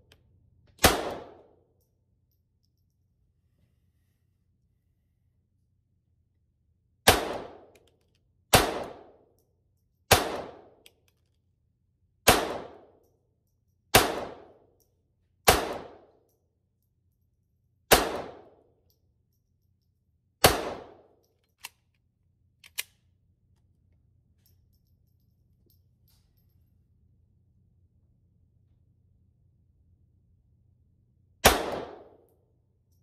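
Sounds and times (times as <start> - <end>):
pistol shots: 0.8 - 1.5, 7.0 - 7.7, 8.5 - 9.2, 10.1 - 10.8, 12.3 - 12.9, 13.9 - 14.6, 15.5 - 16.0, 17.9 - 18.6, 20.4 - 21.1, 31.4 - 32.2.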